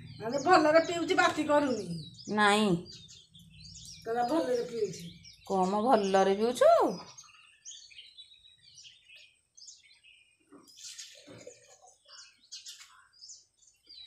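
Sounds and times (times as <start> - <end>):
faint birds chirping: 0.0 - 14.0.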